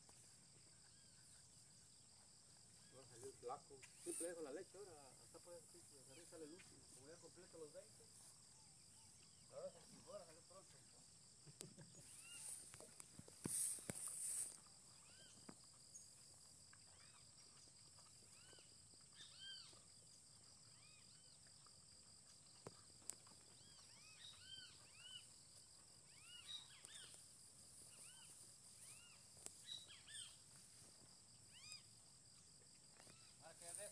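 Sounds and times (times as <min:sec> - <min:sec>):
high insect drone: 0:00.0 - 0:33.9
brief hiss: 0:12.1 - 0:14.6.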